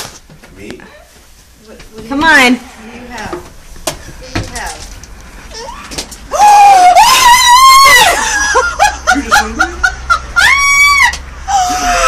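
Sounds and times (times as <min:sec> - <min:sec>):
woman screaming with delight: 0:05.6 - 0:08.4, 0:10.4 - 0:12.0
woman laughing: 0:08.0 - 0:12.0.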